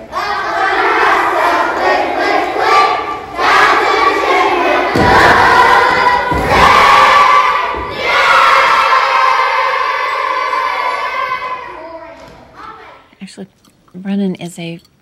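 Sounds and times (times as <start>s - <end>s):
children singing in unison: 0.0s - 11.7s
low thumps: 3.4s - 8.6s.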